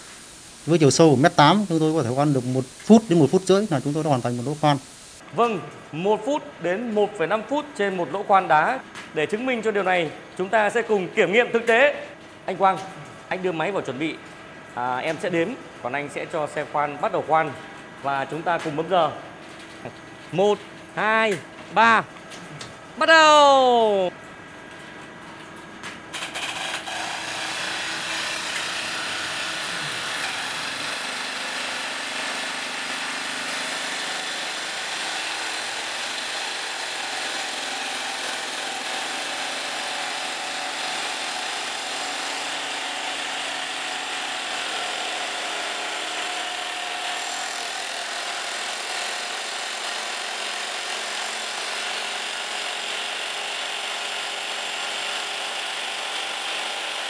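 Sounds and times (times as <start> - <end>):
hydraulic rock drills drilling: 26.2 - 57.0.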